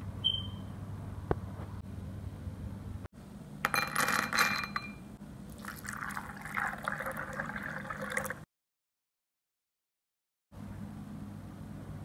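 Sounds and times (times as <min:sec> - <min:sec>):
water pouring and splashing: 0:05.5 - 0:08.4.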